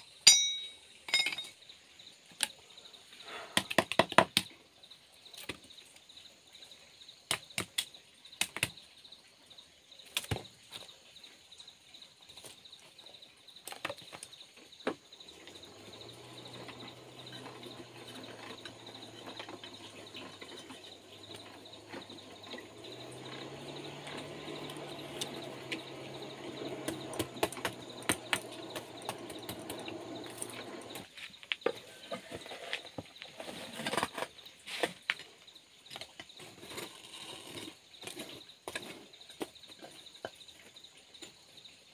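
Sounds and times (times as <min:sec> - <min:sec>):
metal bars and charcoal clinking: 0:00.0 - 0:01.6, 0:15.6 - 0:31.0
hand-cranked forge blower whirring: 0:15.4 - 0:31.1.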